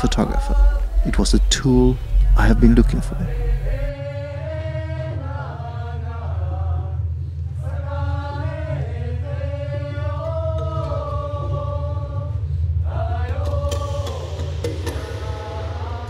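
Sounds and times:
steady low drone: 0.0s - 5.4s, 13.7s - 16.0s
voices chanting long notes: 0.0s - 6.9s, 12.9s - 16.0s.

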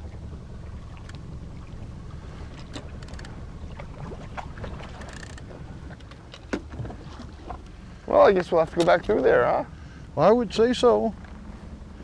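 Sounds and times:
outboard motor rumbling: 0.0s - 12.0s
water lapping against hull: 0.0s - 12.0s
small clicks and splashes: 0.9s - 1.8s, 2.5s - 7.8s.

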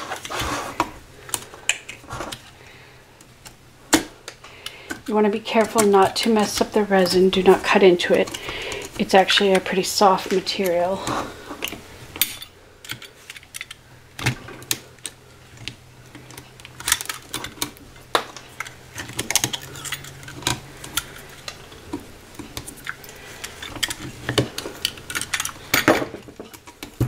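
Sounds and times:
low steady hum: 0.0s - 27.0s
pliers clicking and scraping: 11.5s - 27.0s.

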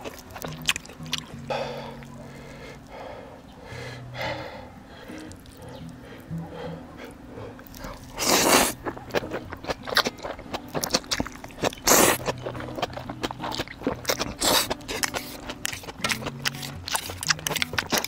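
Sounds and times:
chewing with small clicks: 0.0s - 1.4s, 5.0s - 18.0s
person slurping noodles: 8.2s - 8.8s, 11.8s - 12.3s, 14.2s - 15.9s.

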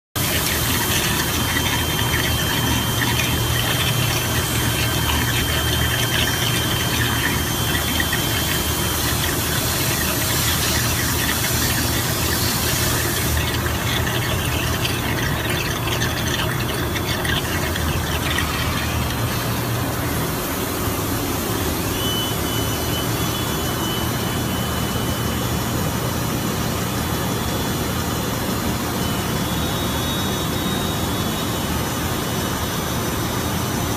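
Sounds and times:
machine low hum: 0.2s - 33.2s
thin high whistle: 21.8s - 25.5s, 29.0s - 31.9s.

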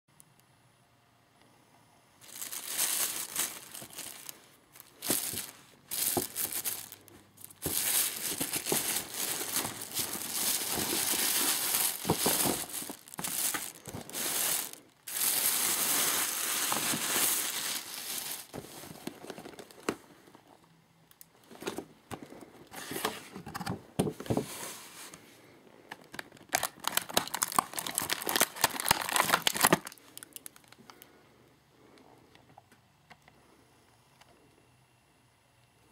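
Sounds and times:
plastic bag rustling: 2.2s - 20.2s, 26.1s - 30.8s.

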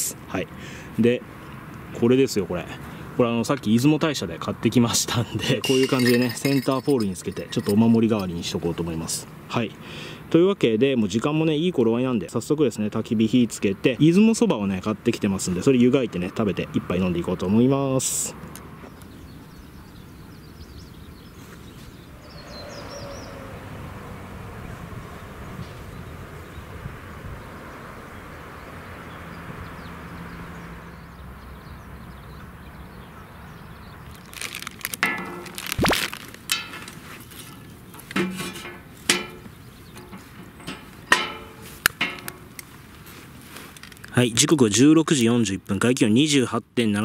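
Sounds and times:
distant road traffic rumble: 0.0s - 47.0s
faint bird chirps: 18.9s - 23.7s
wooden logs knocking on metal grate: 35.0s - 35.7s, 38.0s - 42.5s.

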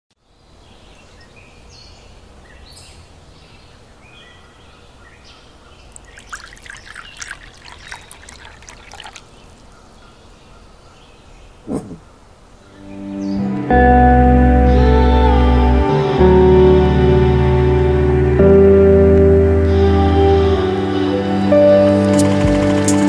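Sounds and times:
birds calling: 0.4s - 13.4s
tea pouring into glass: 5.9s - 9.4s.

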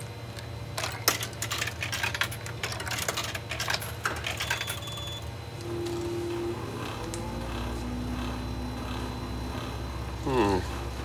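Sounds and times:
coins clinking in vending machine: 0.7s - 5.2s.

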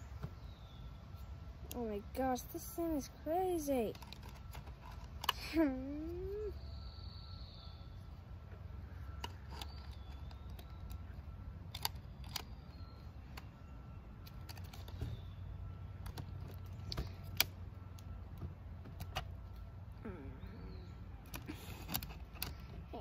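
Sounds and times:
low steady rumble: 0.0s - 23.0s
plastic toy clicking: 3.9s - 5.4s, 9.2s - 12.8s, 21.2s - 22.7s.

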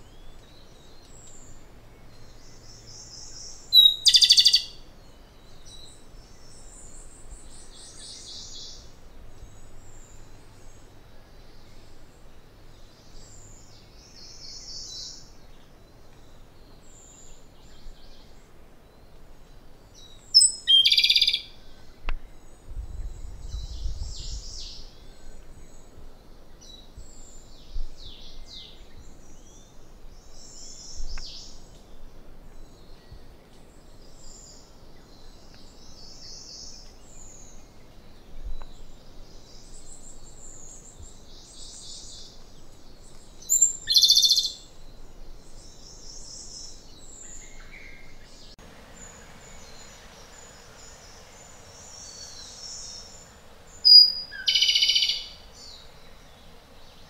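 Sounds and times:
bird singing trilled phrases: 0.0s - 10.3s, 20.0s - 25.9s, 43.4s - 56.3s
faint high bird calls: 0.0s - 12.0s, 13.1s - 22.6s, 43.4s - 56.2s.

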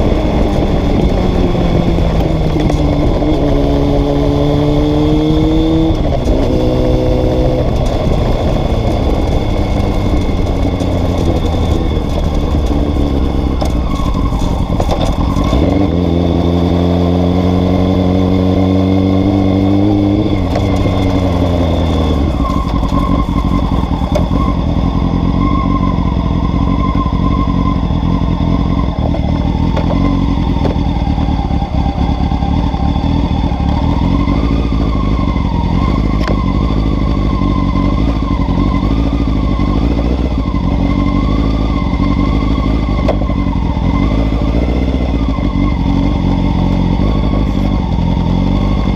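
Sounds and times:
wind rush: 0.0s - 16.5s
motorcycle engine accelerating: 0.0s - 48.9s.

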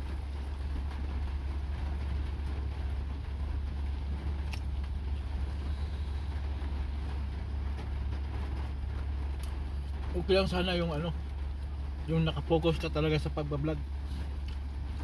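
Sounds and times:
car engine rumble in cabin: 0.0s - 15.0s.

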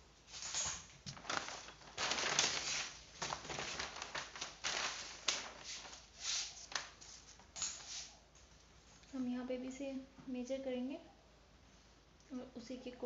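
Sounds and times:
paper rustling and crinkling: 0.3s - 8.2s.

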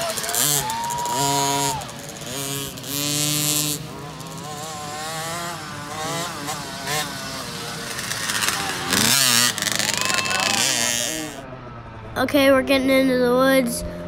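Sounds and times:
dirt bike engines revving: 0.0s - 14.0s.

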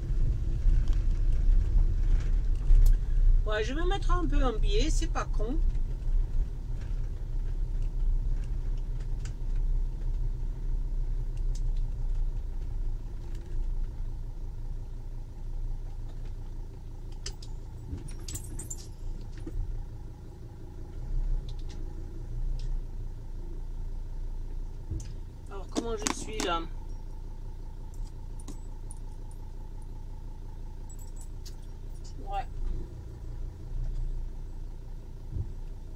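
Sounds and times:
van engine rumble: 0.0s - 35.9s
light clicks and rattles: 15.8s - 19.7s, 27.8s - 32.3s.

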